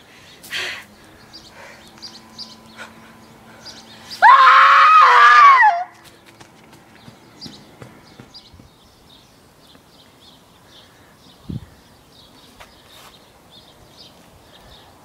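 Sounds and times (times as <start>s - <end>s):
girl screaming: 4.2s - 6.0s.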